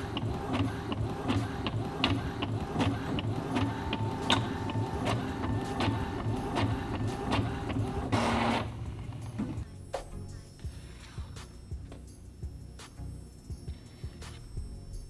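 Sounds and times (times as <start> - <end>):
printer rush: 0.0 - 9.6
printer whirring and clicking: 0.0 - 9.6.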